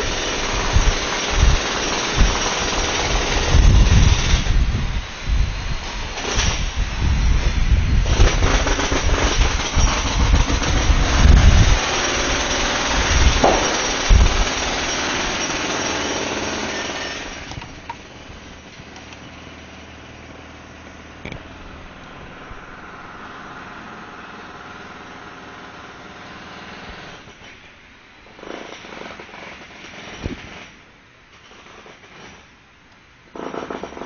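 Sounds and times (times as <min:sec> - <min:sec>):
jackhammer hammering: 0:00.0 - 0:04.7, 0:08.0 - 0:18.1, 0:28.3 - 0:30.8, 0:33.3 - 0:34.0.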